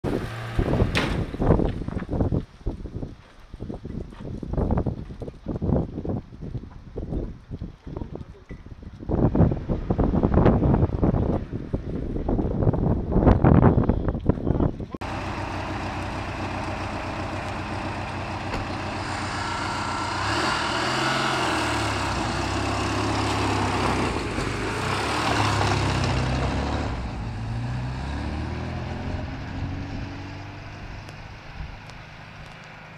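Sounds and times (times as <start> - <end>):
engine revving: 0.0 - 1.3, 15.0 - 32.0.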